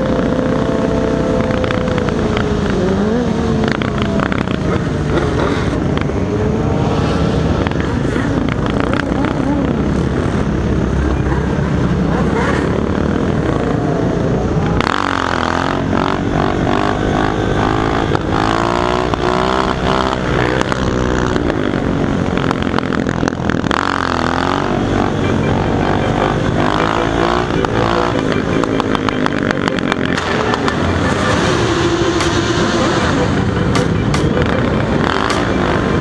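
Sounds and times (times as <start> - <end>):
motorcycle engines revving: 0.0 - 36.0.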